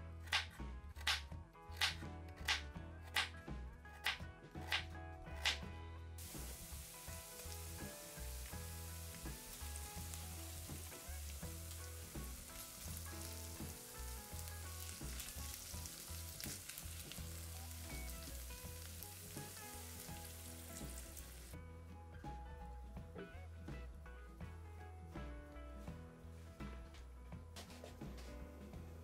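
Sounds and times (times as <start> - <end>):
background music with bass: 0.0 - 29.0
vegetables sizzling in oil: 6.2 - 21.6.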